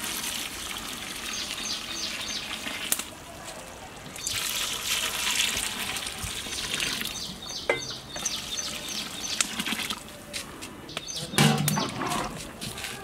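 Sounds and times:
water pouring into curry: 0.0s - 3.3s, 4.1s - 7.2s.

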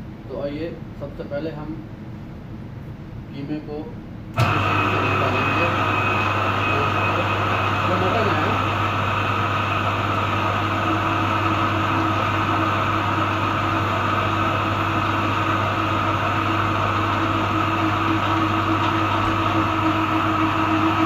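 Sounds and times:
electric meat grinder humming: 4.4s - 21.0s.

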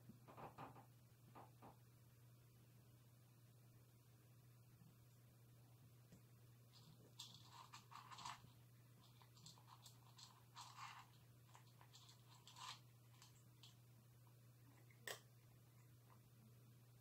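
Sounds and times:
cat crunching dry kibble: 6.7s - 13.8s.

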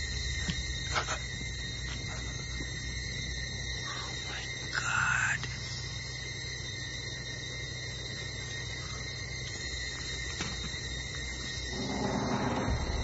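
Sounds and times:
crickets chirring: 0.0s - 13.0s
low rumble: 11.6s - 13.0s.

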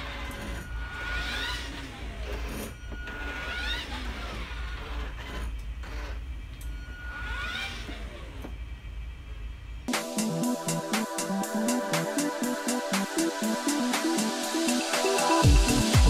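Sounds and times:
electric toy car motors whining: 0.0s - 8.6s.

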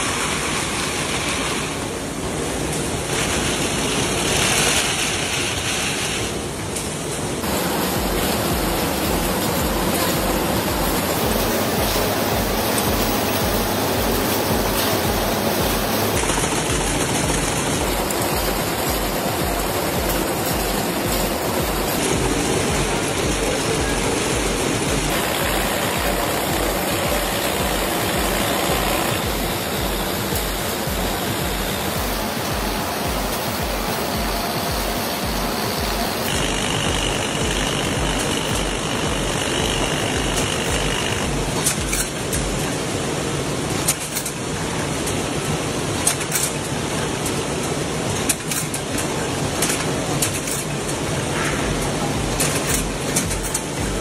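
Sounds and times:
machinery clattering and rattling: 0.0s - 54.0s.

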